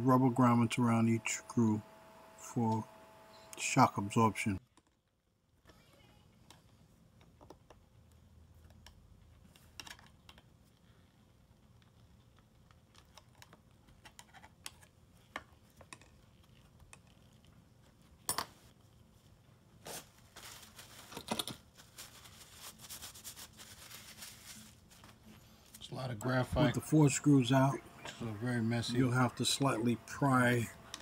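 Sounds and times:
rustling: 19.0s - 25.8s.

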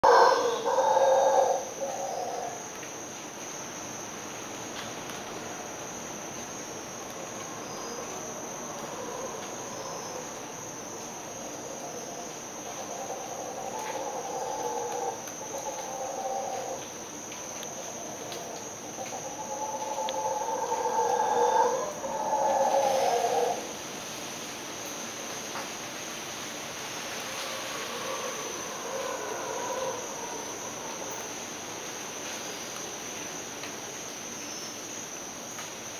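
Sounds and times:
howler monkeys roaring: 0.0s - 2.6s, 11.7s - 16.8s, 18.1s - 23.7s, 27.2s - 31.3s
high-pitched insect drone: 0.0s - 2.8s, 7.3s - 23.7s.

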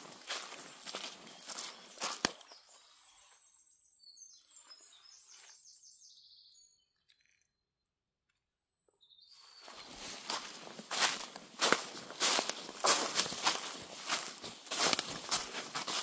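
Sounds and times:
footsteps on forest floor: 0.0s - 3.4s, 9.3s - 16.0s
small bird chirping and trilling: 0.2s - 7.5s, 8.8s - 16.0s.

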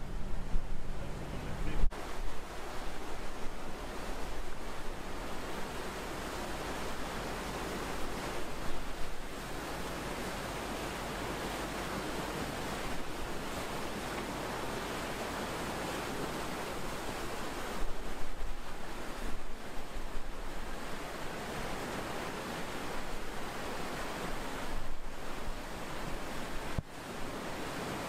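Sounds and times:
wind buffeting microphone: 0.0s - 5.8s
water rushing in ship wake: 0.0s - 28.0s.

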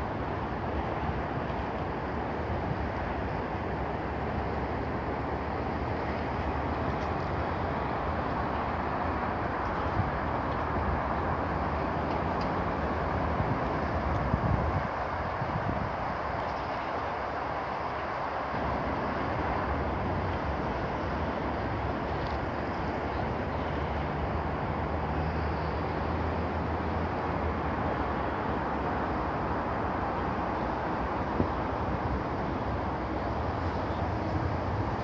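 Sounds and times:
road traffic hum: 0.0s - 35.0s.

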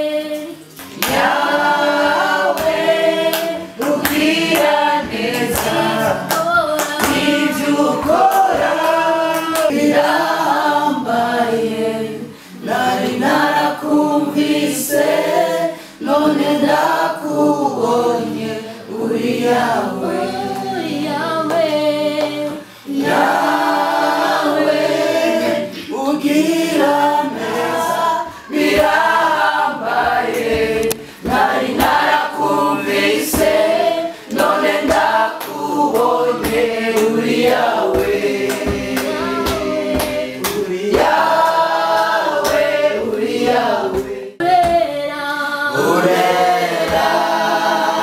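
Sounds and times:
group singing in harmony: 0.0s - 48.0s.

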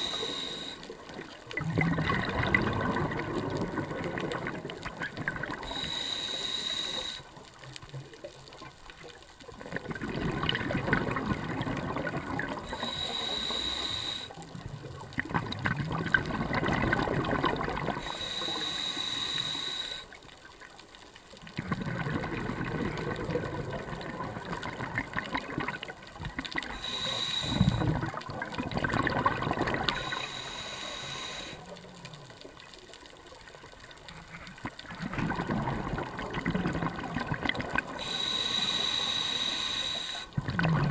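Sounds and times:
scuba regulator inhale hiss: 0.0s - 1.0s, 5.5s - 7.4s, 12.6s - 14.5s, 17.9s - 20.2s, 26.7s - 28.0s, 29.8s - 31.9s, 37.8s - 40.4s
exhaled bubbles rushing: 1.5s - 5.7s, 9.6s - 12.8s, 15.1s - 18.1s, 21.6s - 26.8s, 27.4s - 30.2s, 34.6s - 38.0s, 40.4s - 40.9s.

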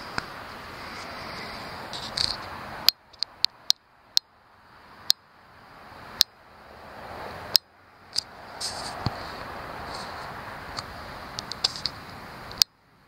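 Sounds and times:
high insect trill: 0.0s - 3.4s
sharp clicks: 2.0s - 4.3s.

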